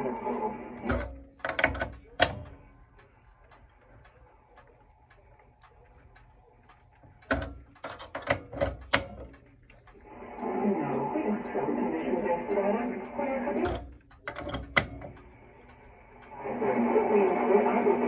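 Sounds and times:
radio broadcast: 0.0s - 7.4s, 9.4s - 18.0s
plug clicks and crackles: 0.8s - 2.8s, 3.4s - 10.0s, 13.6s - 16.4s.

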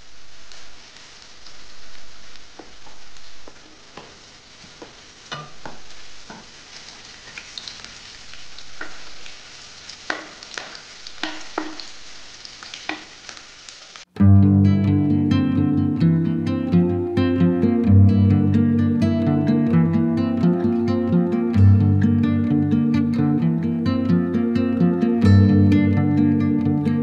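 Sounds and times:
onions sizzling in hot oil: 0.0s - 14.2s
acoustic guitar music: 14.2s - 27.0s.

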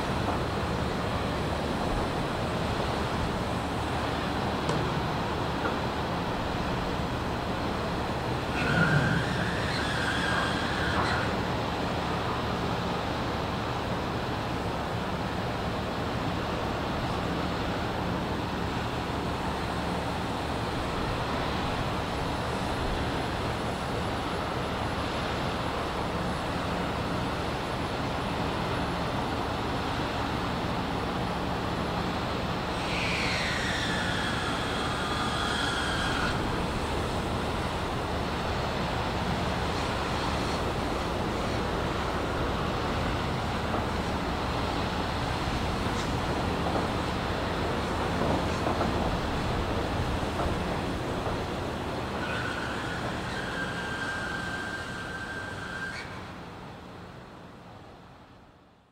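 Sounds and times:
ferry engines droning: 0.0s - 58.2s
high gliding squeal: 8.5s - 11.4s, 52.1s - 56.3s.

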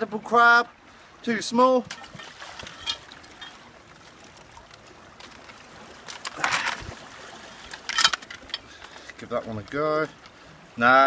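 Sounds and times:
rush of water: 0.0s - 11.0s
sea water lapping against rocks: 1.8s - 10.9s.

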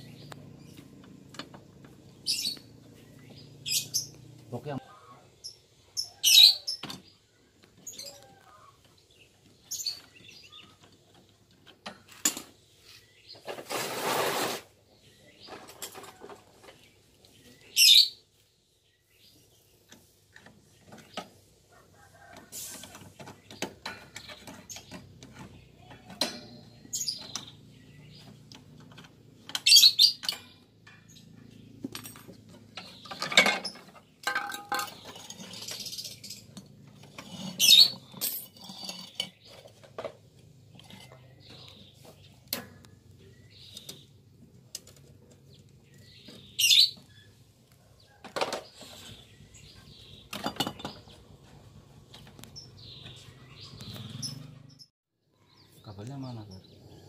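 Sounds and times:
sharp metal clatters: 28.8s - 39.8s.

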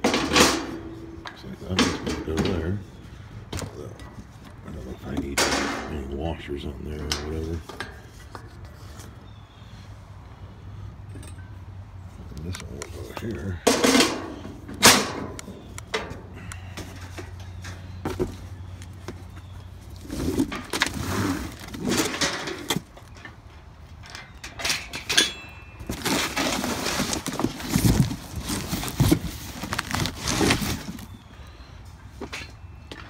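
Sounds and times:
metal parts clicking and knocking: 21.8s - 28.2s
plastic rustling: 25.8s - 31.3s.

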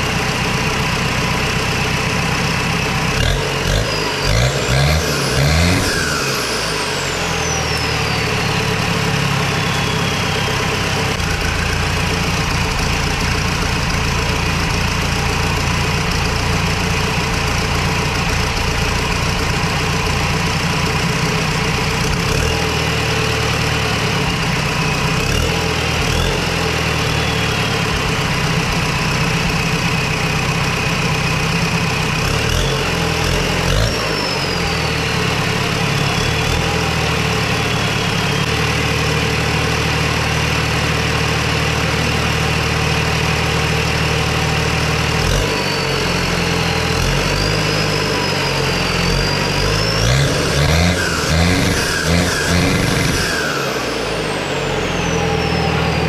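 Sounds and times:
diesel engine idling and revving: 0.0s - 56.0s
turbo whistle: 3.9s - 12.7s, 26.8s - 28.5s, 33.8s - 39.3s, 45.4s - 56.0s.

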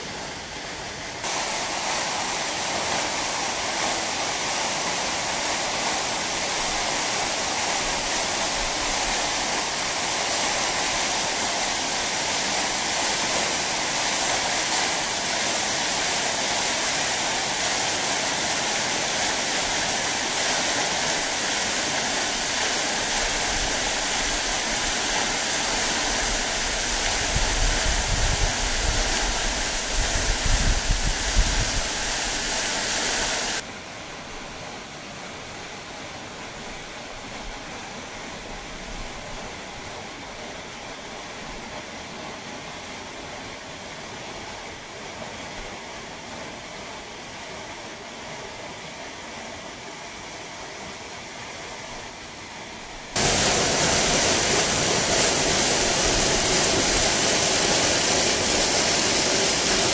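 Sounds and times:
waterfall roaring: 0.0s - 49.4s, 51.1s - 59.9s.

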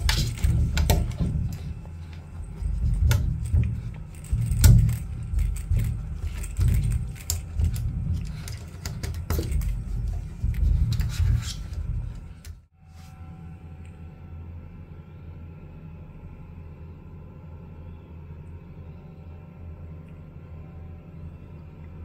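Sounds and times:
steady low rumble: 0.0s - 12.7s.

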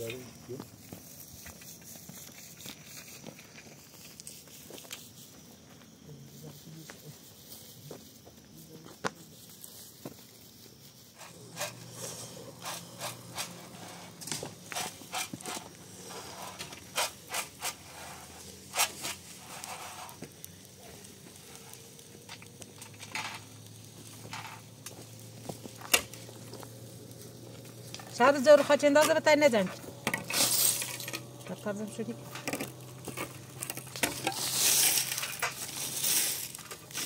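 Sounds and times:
scraping: 11.2s - 37.0s.

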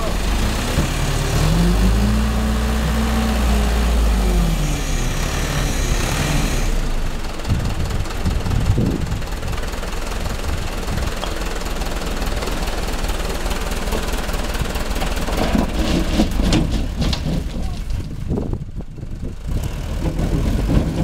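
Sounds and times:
diesel engine rumbling: 0.0s - 21.0s
knocks and rattles: 13.8s - 18.6s, 20.0s - 21.0s.

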